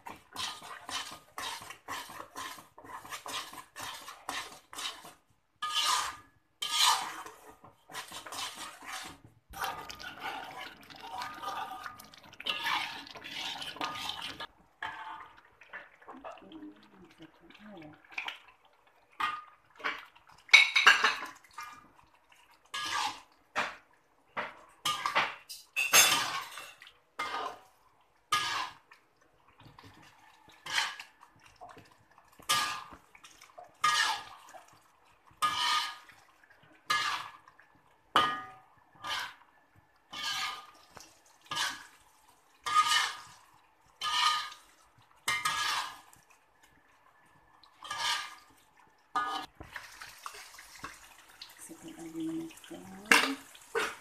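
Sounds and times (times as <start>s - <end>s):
metal spatula scraping a wok: 0.0s - 15.3s, 22.7s - 23.3s, 24.8s - 25.2s, 25.8s - 27.7s, 28.3s - 28.8s, 30.5s - 31.1s, 32.5s - 33.0s, 33.8s - 34.4s, 35.4s - 36.1s, 36.9s - 37.4s, 38.2s - 39.4s, 40.1s - 40.8s, 41.5s - 42.0s, 42.6s - 43.4s, 44.0s - 44.7s, 45.3s - 46.1s, 47.8s - 48.5s, 49.2s - 49.5s.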